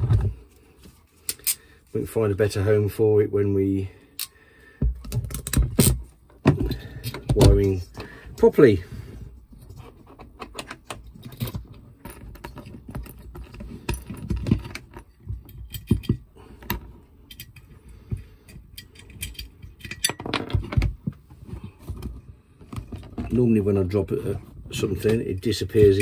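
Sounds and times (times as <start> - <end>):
small metal parts clicking: 10.1 - 17.7, 18.4 - 20.8.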